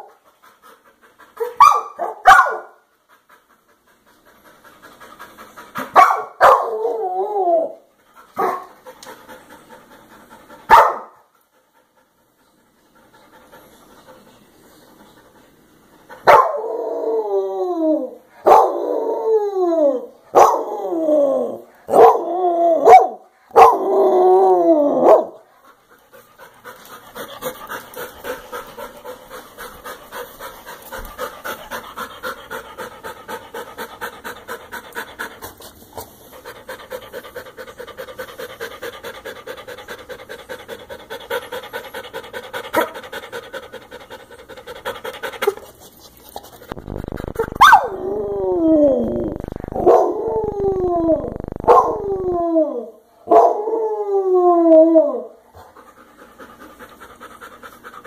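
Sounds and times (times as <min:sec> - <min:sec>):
dog panting: 0:00.0 - 0:06.6, 0:07.9 - 0:16.5, 0:25.0 - 0:48.1, 0:55.4 - 0:58.0
dog crying: 0:46.7 - 0:52.9.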